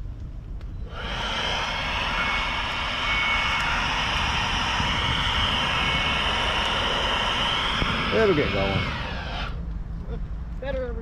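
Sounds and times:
electric leaf blower whining: 0.8s - 9.6s.

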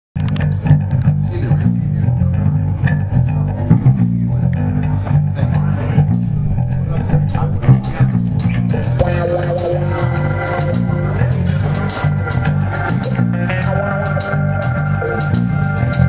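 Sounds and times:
bass guitar groove: 0.2s - 16.0s
funk band playing: 2.0s - 16.0s
drum kit: 6.1s - 16.0s
electric guitar sustained notes: 6.2s - 16.0s.

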